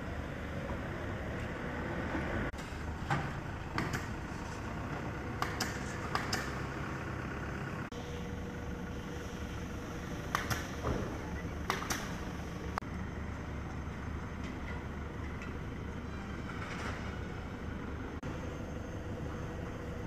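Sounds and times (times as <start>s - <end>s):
low mechanical rumble and hum: 0.0s - 20.0s
sharp clicks and knocks: 3.1s - 4.2s, 5.4s - 6.6s, 10.3s - 12.2s.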